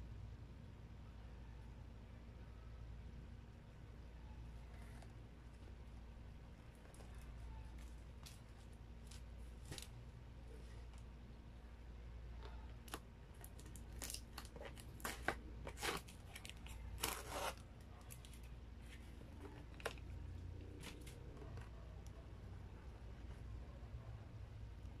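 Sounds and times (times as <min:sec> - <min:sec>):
plastic sachets crinkling: 0:12.7 - 0:20.1.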